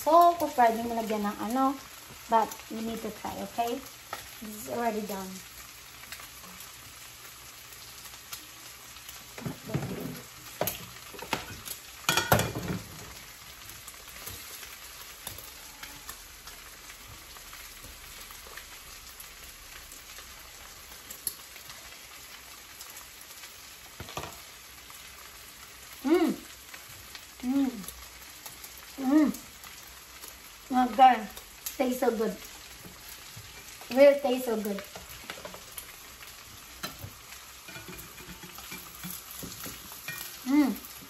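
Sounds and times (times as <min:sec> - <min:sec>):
meat sizzling in a frying pan: 0:00.0 - 0:41.0
spatula scraping a pan: 0:36.6 - 0:40.4.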